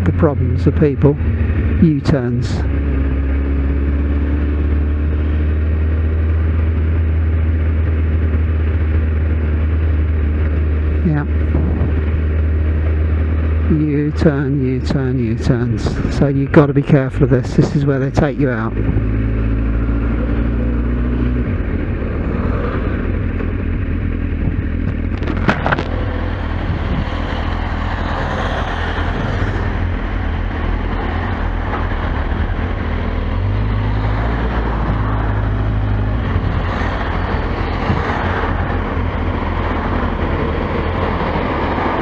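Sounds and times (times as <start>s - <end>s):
motorcycle engine running: 0.0s - 42.0s
wind rushing over microphone: 10.2s - 13.7s, 14.9s - 17.9s, 20.8s - 42.0s.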